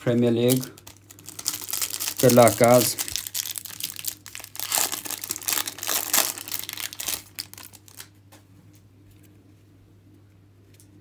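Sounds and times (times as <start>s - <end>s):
plastic wrapper crinkling and tearing: 0.3s - 8.2s.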